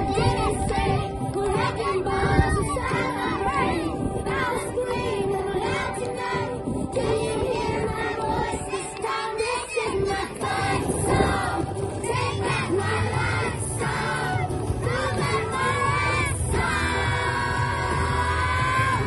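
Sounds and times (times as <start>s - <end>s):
children singing and shouting: 0.0s - 19.0s
music: 0.0s - 19.0s.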